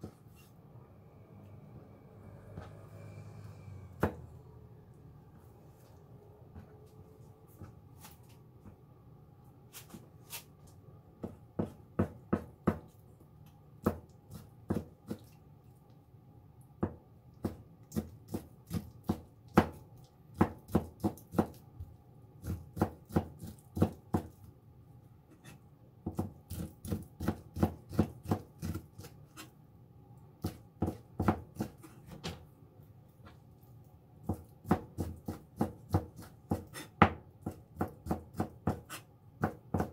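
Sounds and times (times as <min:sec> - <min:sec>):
knife chopping on cutting board: 0:11.2 - 0:12.9, 0:13.8 - 0:15.3, 0:16.8 - 0:21.6, 0:22.4 - 0:24.4, 0:25.4 - 0:29.5, 0:30.4 - 0:32.4, 0:34.2 - 0:39.9.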